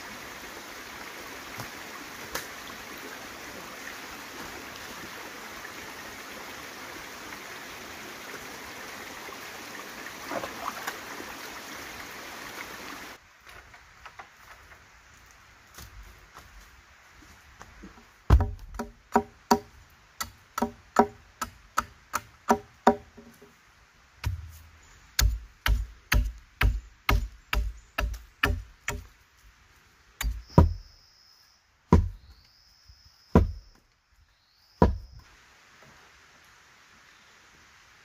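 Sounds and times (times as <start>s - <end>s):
machete chopping wood: 18.3s - 23.2s, 25.2s - 29.1s, 30.2s - 30.8s, 31.9s - 32.2s, 33.4s - 33.6s, 34.8s - 35.1s.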